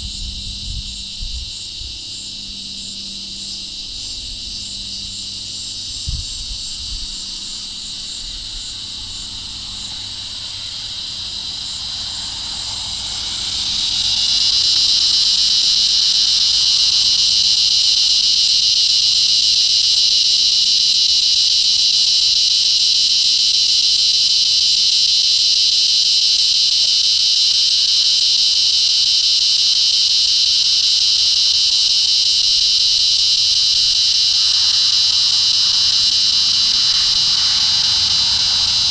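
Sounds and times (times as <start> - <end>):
cicada buzzing drone: 0.0 - 38.9.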